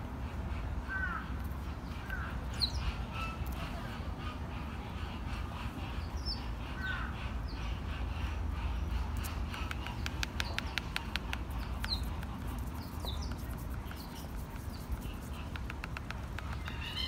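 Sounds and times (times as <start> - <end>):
bird chirps: 8.8 - 17.0
sharp clicks: 9.2 - 17.0.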